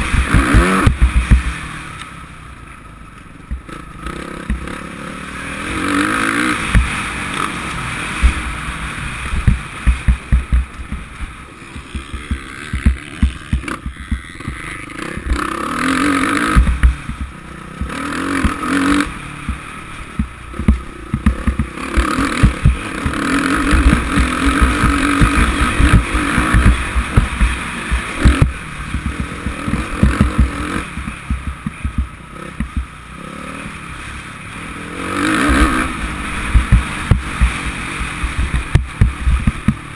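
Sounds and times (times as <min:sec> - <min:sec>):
motocross bike engine revving: 0:00.0 - 0:39.9
wind buffeting on camera: 0:08.2 - 0:15.5, 0:20.2 - 0:32.9, 0:35.4 - 0:39.9.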